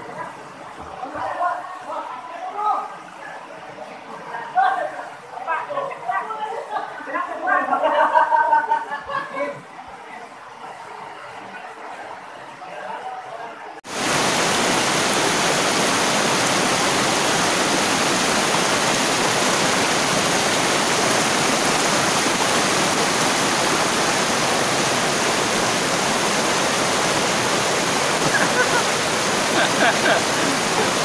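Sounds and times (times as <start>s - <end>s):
river rapids rushing: 13.9s - 31.0s.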